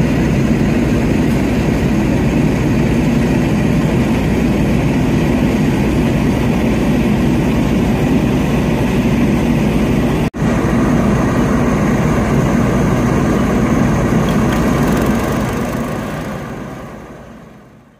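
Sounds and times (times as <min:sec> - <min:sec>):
fire engines running: 0:00.0 - 0:17.9.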